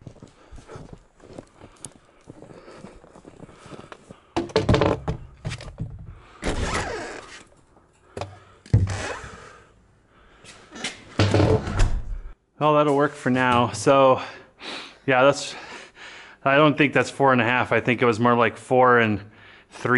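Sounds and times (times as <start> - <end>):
heavy thumps and knocks: 4.4 - 6.6.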